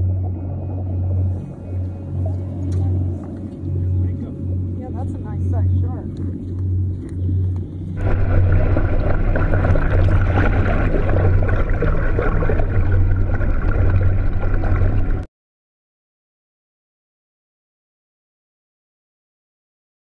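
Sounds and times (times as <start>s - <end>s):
low pulsing hum: 0.0s - 15.3s
underwater water rush: 6.2s - 15.3s.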